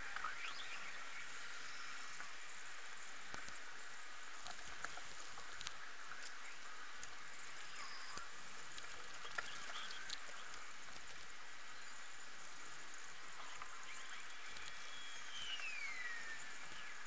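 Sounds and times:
steady hiss: 0.0 - 17.0
faint clicks and ticks: 3.2 - 11.8, 12.4 - 15.0.

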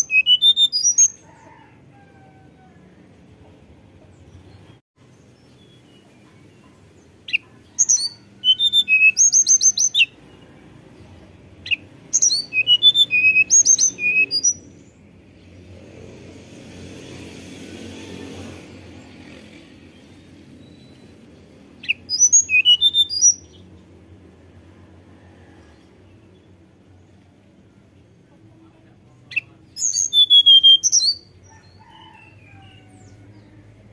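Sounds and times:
bird singing fluting whistle: 0.0 - 1.2, 7.3 - 10.2, 11.6 - 14.7, 21.8 - 23.6, 29.3 - 31.3.

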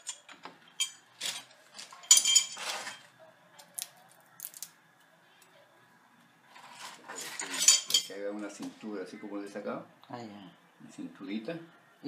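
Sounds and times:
tools clinking on metal pipe: 0.0 - 1.4, 2.0 - 2.6, 7.4 - 8.2.

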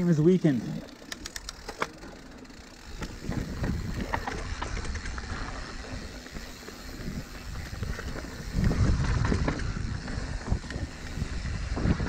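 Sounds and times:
bike tyre and frame rumble: 0.0 - 12.0
sharp clicks: 0.9 - 2.2
bike knocks and rattles: 0.9 - 12.0.

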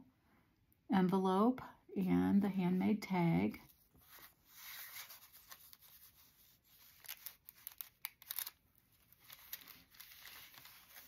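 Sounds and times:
paper rustling and crinkling: 3.7 - 11.0.

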